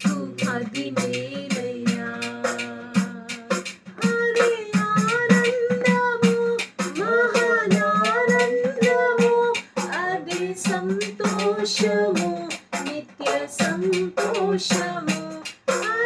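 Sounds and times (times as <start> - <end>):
handclaps keeping beat: 0.0 - 16.0
woman singing worship song: 0.0 - 16.0.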